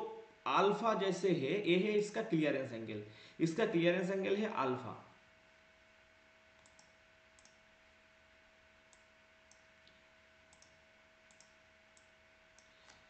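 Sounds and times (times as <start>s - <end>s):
faint steady hum: 0.0s - 13.0s
computer mouse clicks: 6.6s - 7.6s, 8.9s - 13.0s.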